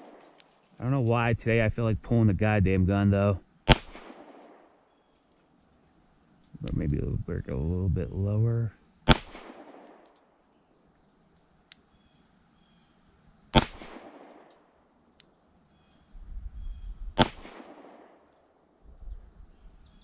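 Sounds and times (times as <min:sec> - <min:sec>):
pistol shots: 0:03.7 - 0:04.7, 0:09.1 - 0:10.0, 0:13.5 - 0:14.5, 0:17.2 - 0:18.2.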